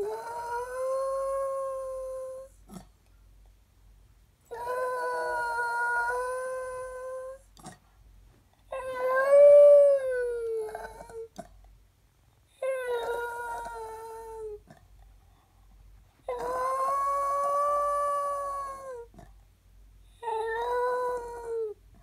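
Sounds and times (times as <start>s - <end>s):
dog howling: 4.5s - 7.4s, 16.3s - 19.1s, 20.2s - 21.8s.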